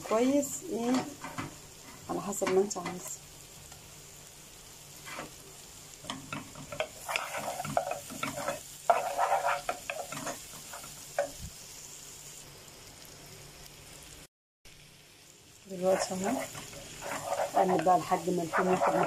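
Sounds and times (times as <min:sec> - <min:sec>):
garlic sizzling in butter: 0:00.0 - 0:19.0
wooden spoon scraping a pot: 0:05.0 - 0:05.4, 0:06.3 - 0:11.4, 0:15.8 - 0:19.0.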